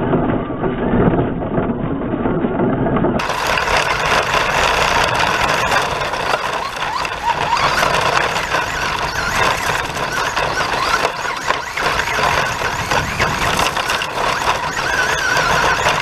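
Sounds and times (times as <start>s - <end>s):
motor and gear whine: 3.2s - 16.0s
tyres and grit rattling: 3.2s - 16.0s.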